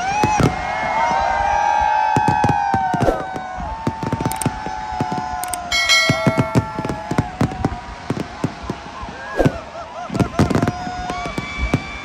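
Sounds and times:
fireworks bangs and crackles: 0.0 - 12.0
fireworks whistling: 0.0 - 12.0
bell-like chime: 5.7 - 6.9.

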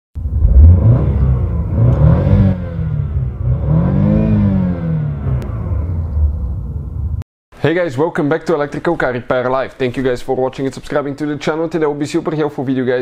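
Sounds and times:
car engine revving: 0.2 - 7.2.

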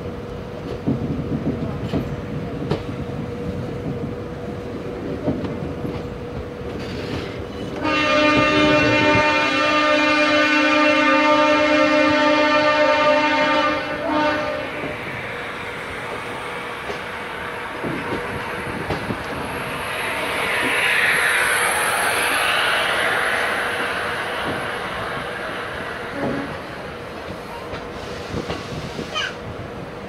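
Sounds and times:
train coach rolling on rails: 0.0 - 30.0
train horn: 7.7 - 15.5, 22.9 - 26.8
broad hiss: 14.6 - 29.2
wheel clacks at rail joints: 17.8 - 19.5.

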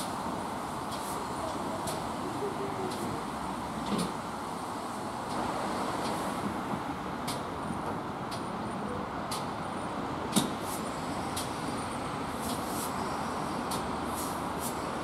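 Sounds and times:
steam locomotive hissing: 0.0 - 7.0, 10.4 - 15.0.

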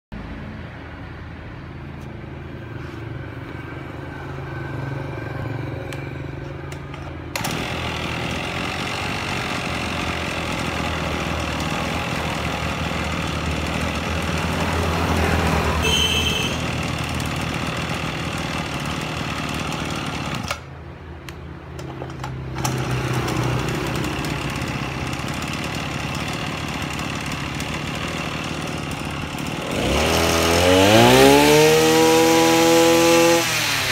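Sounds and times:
brush cutter engine idling: 5.9 - 33.9.

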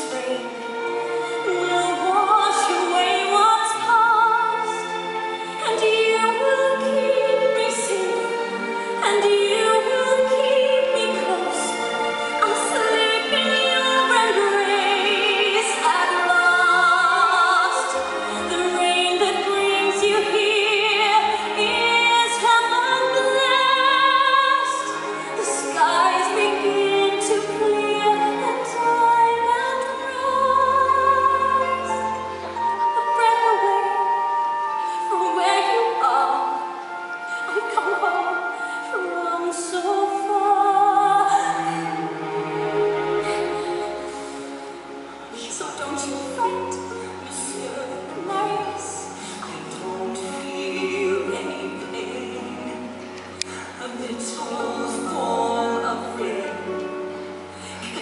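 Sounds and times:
sustained instrumental accompaniment: 0.0 - 58.0
woman singing a ballad: 5.6 - 8.4, 9.0 - 41.9, 45.4 - 58.0.

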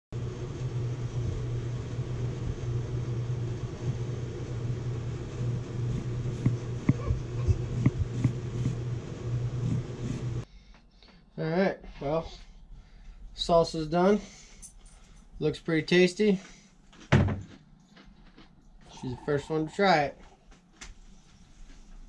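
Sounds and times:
low mechanical hum: 0.2 - 11.2
knife slicing onion: 5.8 - 8.8.

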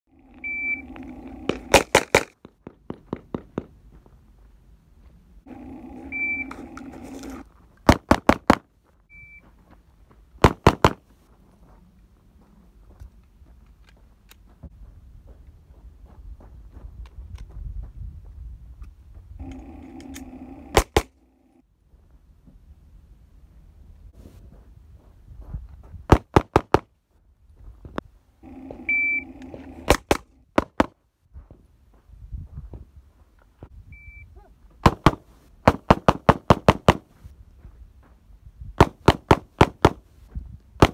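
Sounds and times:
handgun shots: 1.7 - 2.4, 34.8 - 37.0
high steady tone: 5.5 - 6.9
shot timer beep: 6.1 - 6.5, 33.9 - 34.3.

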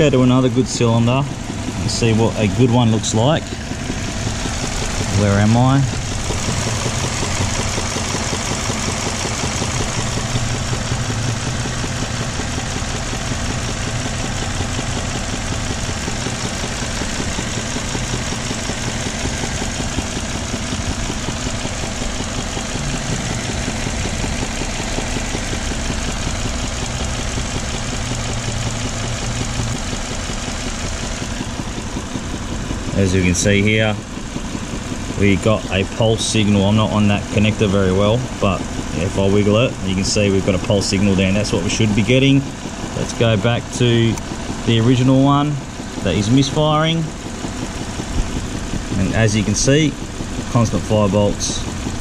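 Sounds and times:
car engine idling with misfire: 0.0 - 52.0.

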